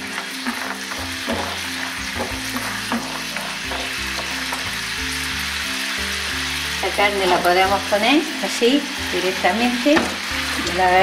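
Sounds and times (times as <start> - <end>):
food sizzling in frying pan: 0.0 - 11.0
wooden spatula stirring: 0.1 - 4.8.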